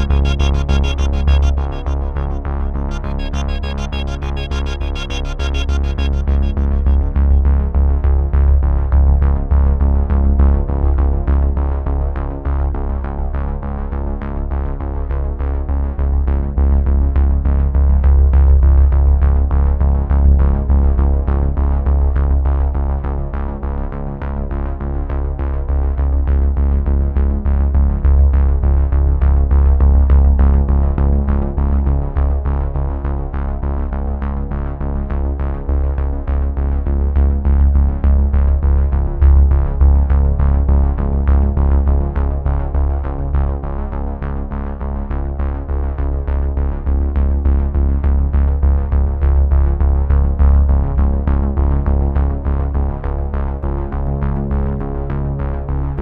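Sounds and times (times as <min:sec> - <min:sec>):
electronic music with heavy bass: 0:00.0 - 0:07.9.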